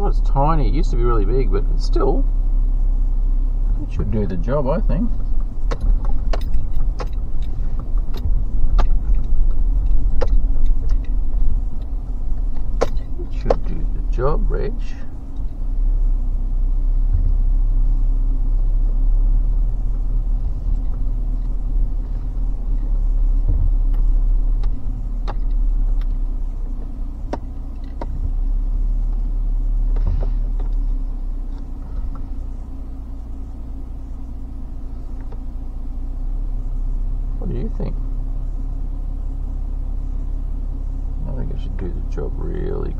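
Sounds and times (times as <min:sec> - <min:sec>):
car cabin rumble: 0:00.0 - 0:42.9
sharp clicks and knocks: 0:05.1 - 0:14.0, 0:22.6 - 0:28.4.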